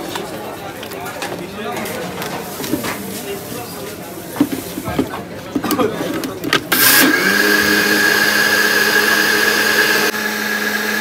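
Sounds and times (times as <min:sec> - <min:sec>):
electric blender whining: 0:06.7 - 0:11.0.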